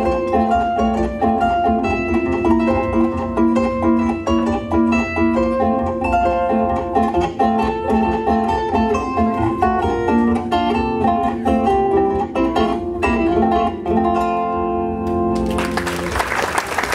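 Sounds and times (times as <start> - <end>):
zither playing melody: 0.0 - 15.0
audience applause: 15.4 - 16.9.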